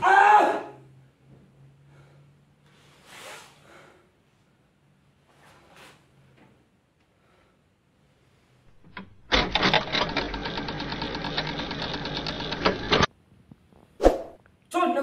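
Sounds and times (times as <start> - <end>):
film projector clatter: 8.7 - 13.1.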